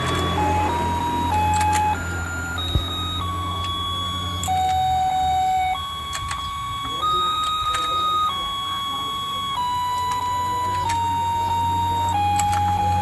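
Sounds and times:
electronic toy beeping tune: 0.0s - 13.0s
low motor hum: 0.0s - 13.0s
small plastic clicks: 5.8s - 8.4s, 9.5s - 13.0s.

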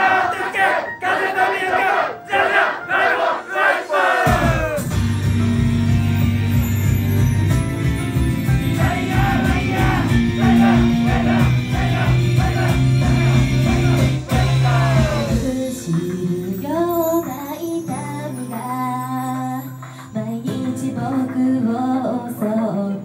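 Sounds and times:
pop-rock band with heavy drums: 4.2s - 16.7s
guitar: 4.3s - 23.0s
female voices singing: 20.2s - 23.0s.

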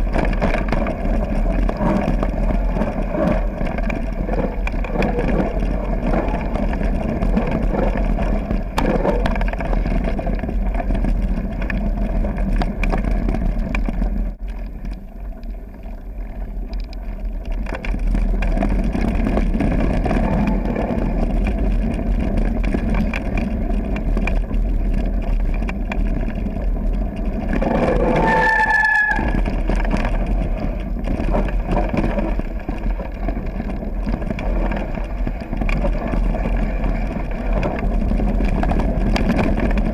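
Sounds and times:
bike rattling: 0.0s - 39.9s
wind rumble on microphone: 0.0s - 39.9s
short pitched squeal: 27.9s - 29.4s.

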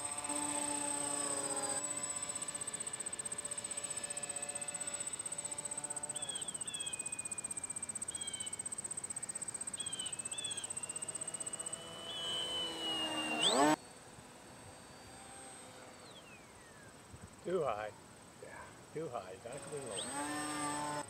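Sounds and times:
crickets chirring: 0.0s - 14.0s
model plane motor whine: 0.0s - 18.4s, 19.0s - 21.0s.

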